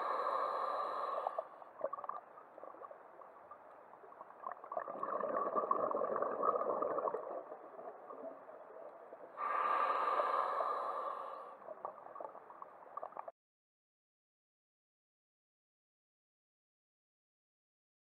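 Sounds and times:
regulator inhale hiss: 0.0 - 1.6, 9.4 - 11.7
exhaled bubbles crackling: 1.2 - 9.6, 11.6 - 13.3.

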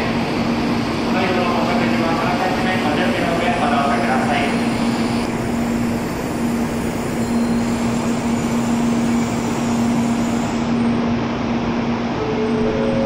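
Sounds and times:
train rolling with low rumble: 0.0 - 13.0
higher steady tones: 11.9 - 13.0.

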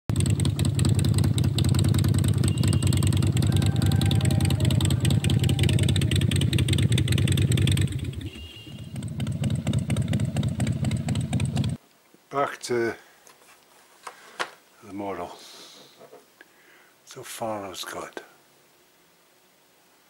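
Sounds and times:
motorcycle engine running: 0.1 - 11.8.

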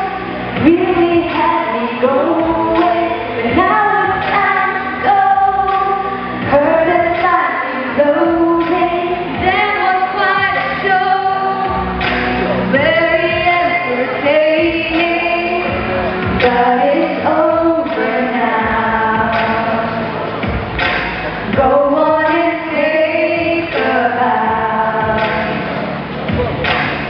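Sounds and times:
girls singing a pop duet: 0.0 - 25.8.

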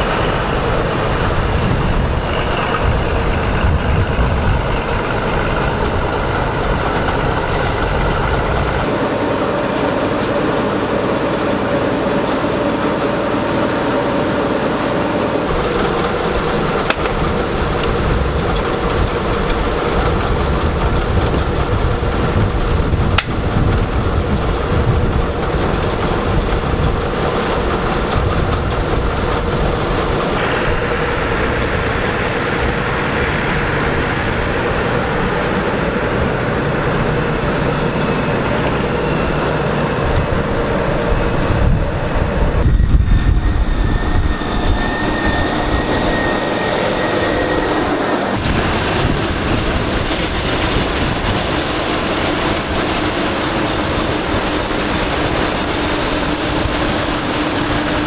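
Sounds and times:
combine engine running: 0.0 - 58.0.

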